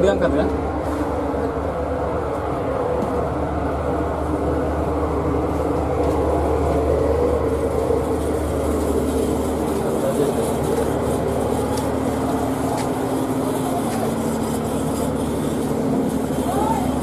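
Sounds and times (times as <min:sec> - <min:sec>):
ship engines droning: 0:00.0 - 0:17.0.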